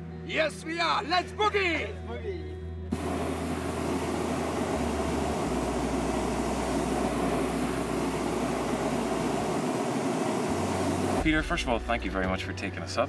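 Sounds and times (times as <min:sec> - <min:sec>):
propane burner rushing: 0:02.9 - 0:11.3.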